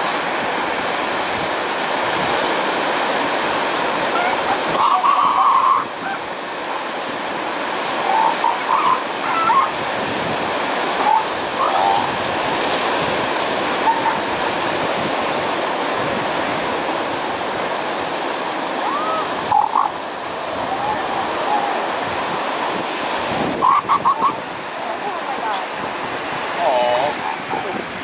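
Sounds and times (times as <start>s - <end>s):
ocean surf washing over rocks: 0.0s - 28.0s
faint high-pitched calls: 8.0s - 9.8s.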